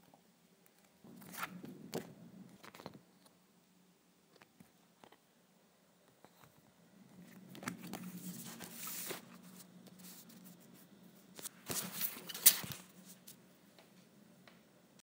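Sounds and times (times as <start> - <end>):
plastic folders rustling and sliding: 7.2 - 10.4, 11.3 - 12.9.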